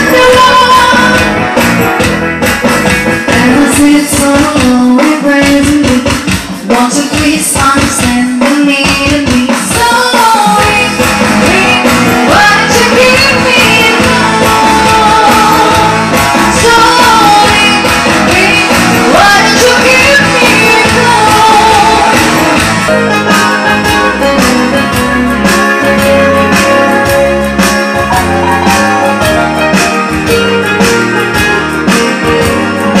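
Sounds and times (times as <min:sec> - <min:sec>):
person singing: 0:00.0 - 0:01.4, 0:03.3 - 0:25.0
bass and beat: 0:00.0 - 0:33.0
guitar: 0:00.0 - 0:33.0.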